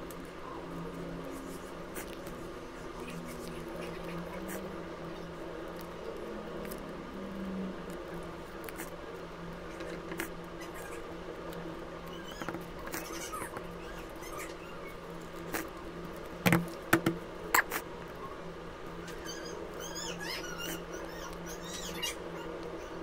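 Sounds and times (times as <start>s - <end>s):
steady low hum: 0.0s - 23.0s
faint chirping squeaks: 9.7s - 11.1s, 12.0s - 15.2s, 17.6s - 23.0s.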